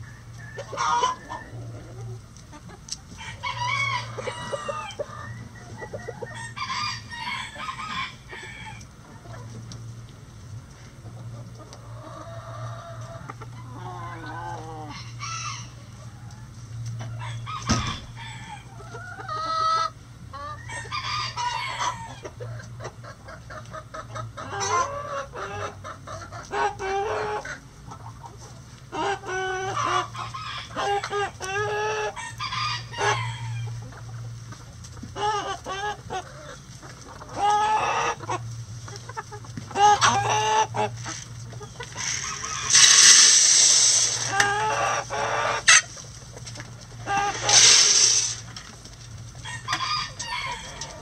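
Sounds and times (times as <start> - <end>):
hens clucking: 0.0 - 51.0
rooster crowing: 3.2 - 5.0, 49.4 - 51.0.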